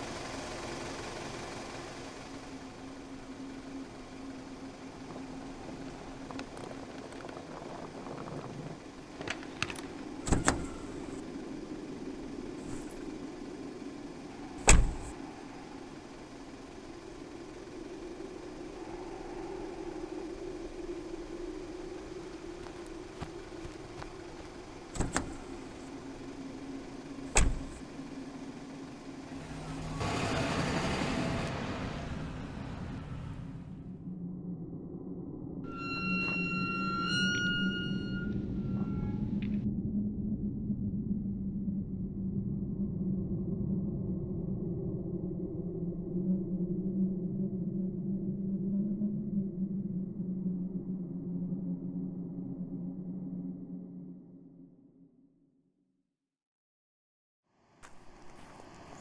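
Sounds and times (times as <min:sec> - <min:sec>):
car engine idling: 0:00.0 - 0:33.8
car door latch clacking: 0:14.6 - 0:15.1, 0:25.0 - 0:25.6, 0:27.3 - 0:27.8.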